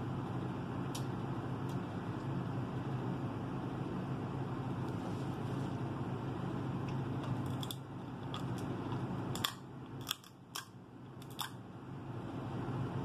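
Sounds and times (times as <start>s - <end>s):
steady low hum: 0.0s - 13.0s
crab shells cracking: 9.3s - 11.6s.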